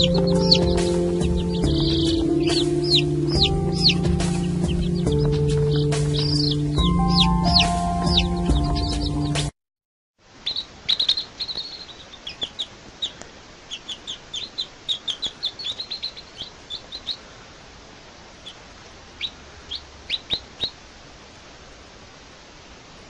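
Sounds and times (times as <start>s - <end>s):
baby chicks peeping: 0.0s - 9.5s, 10.4s - 20.8s
background music: 0.0s - 9.5s
steady hiss: 10.2s - 23.0s.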